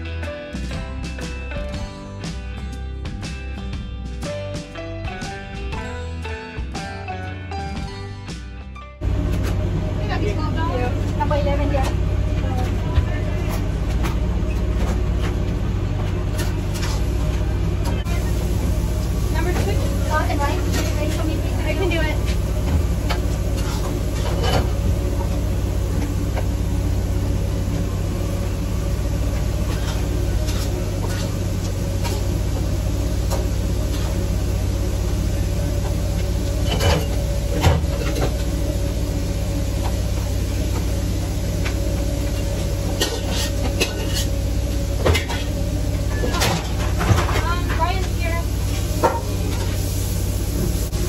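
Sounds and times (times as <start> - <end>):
machine hum: 9.0 - 51.0
kitchen clicks and clatters: 43.0 - 44.4.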